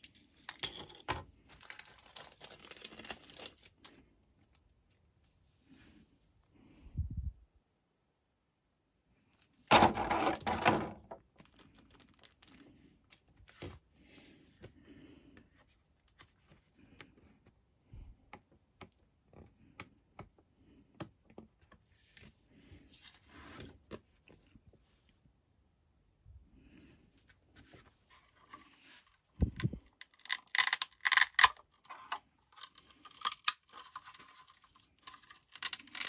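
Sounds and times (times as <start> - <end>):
packaging crinkling: 1.5 - 4.0, 11.3 - 12.7, 29.9 - 36.0.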